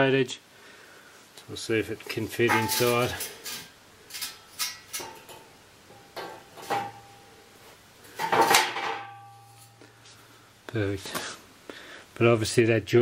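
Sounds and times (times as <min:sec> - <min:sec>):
steel sections scraping: 0:02.4 - 0:05.4
metal clanks: 0:02.4 - 0:07.2, 0:08.1 - 0:09.8.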